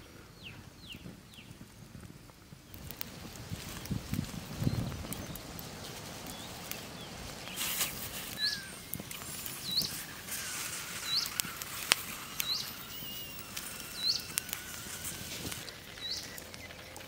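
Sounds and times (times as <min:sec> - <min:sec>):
campfire crackling and popping: 0:00.0 - 0:17.0
bird chirping: 0:02.7 - 0:17.0
short rustle: 0:05.7 - 0:15.7.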